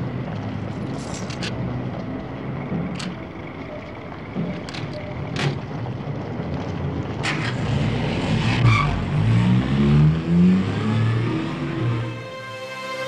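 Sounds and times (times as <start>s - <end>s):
car engine accelerating: 7.2s - 13.0s.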